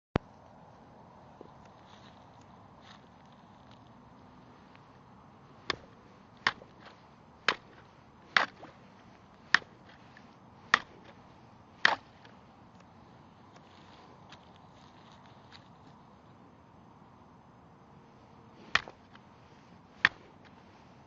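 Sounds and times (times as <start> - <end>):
stick breaking thin ice: 11.8 - 12.3.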